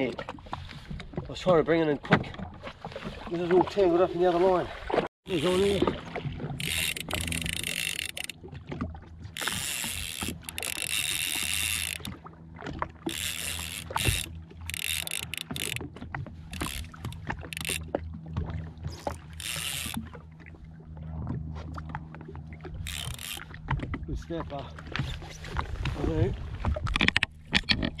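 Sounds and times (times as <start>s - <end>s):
fishing reel ratcheting and whirring: 5.3s - 5.9s, 6.6s - 8.4s, 9.3s - 12.2s, 13.0s - 17.9s, 18.9s - 20.1s, 22.8s - 23.6s.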